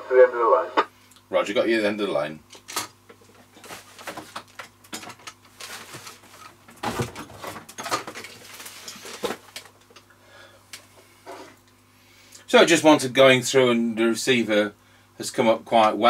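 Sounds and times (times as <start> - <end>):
radio crackle and hiss: 0.0 - 2.4.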